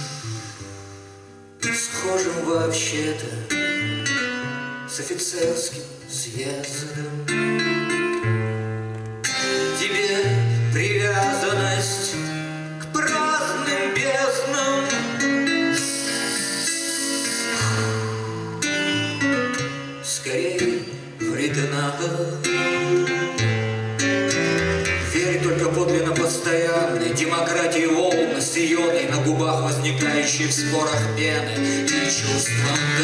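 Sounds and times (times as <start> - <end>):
plucked classical guitar: 0.0 - 33.0
man singing: 1.6 - 4.1, 4.9 - 8.0, 9.5 - 33.0.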